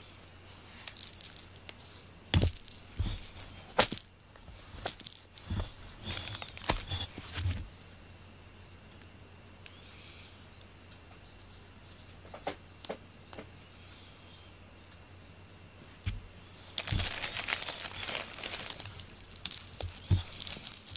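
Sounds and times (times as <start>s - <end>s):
small metal bell jingling: 0.8s - 1.6s, 2.4s - 4.3s, 4.9s - 5.3s, 17.5s - 20.9s.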